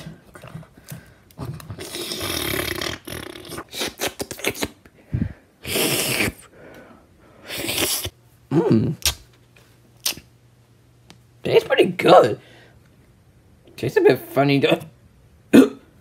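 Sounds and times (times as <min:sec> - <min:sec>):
person slurping: 0:00.0 - 0:04.8, 0:05.6 - 0:06.5, 0:07.4 - 0:09.1.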